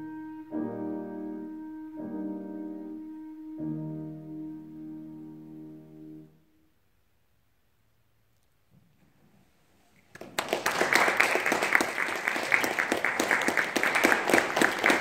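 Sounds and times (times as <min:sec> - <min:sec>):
audience applause: 0:10.1 - 0:15.0.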